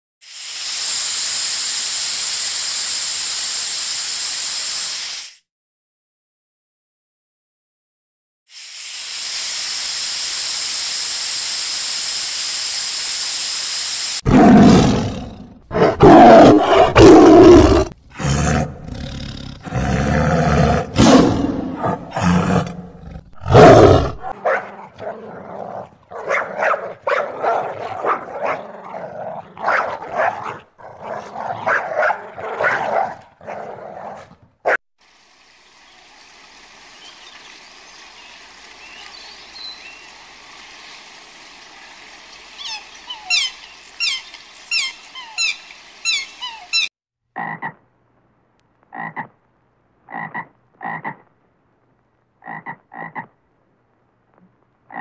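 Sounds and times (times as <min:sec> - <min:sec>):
steady hiss: 0:00.2 - 0:05.4, 0:08.5 - 0:14.2, 0:35.0 - 0:46.8
tiger roaring and growling: 0:14.2 - 0:34.4
faint water noise: 0:35.0 - 0:46.9.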